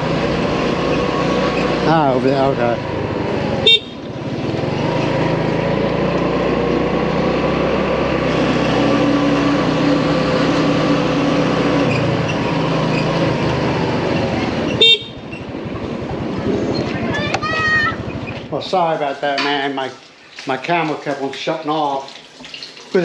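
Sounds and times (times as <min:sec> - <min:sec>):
motorcycle engine running: 0:00.0 - 0:18.8
road noise: 0:00.0 - 0:23.0.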